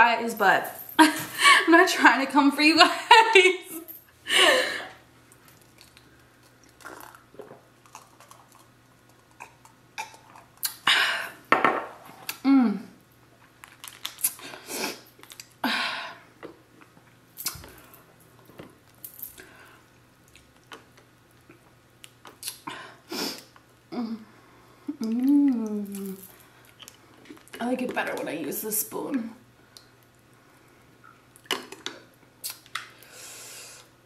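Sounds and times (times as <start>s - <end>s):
chewing and mouth smacks: 5.3s - 10.8s, 15.1s - 15.6s, 20.2s - 22.6s, 25.0s - 27.6s, 31.0s - 33.0s.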